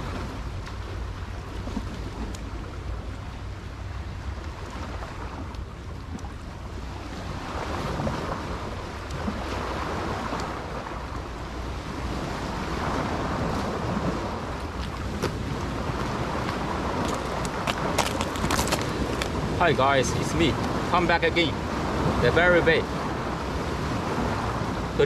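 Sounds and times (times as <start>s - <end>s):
wind buffeting microphone: 0.0s - 25.0s
small waves washing on rocks: 11.9s - 24.8s
boots stepping on shells: 17.0s - 19.3s.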